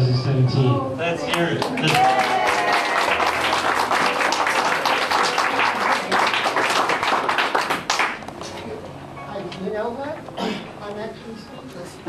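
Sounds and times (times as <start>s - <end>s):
crowd applause: 1.3s - 8.3s.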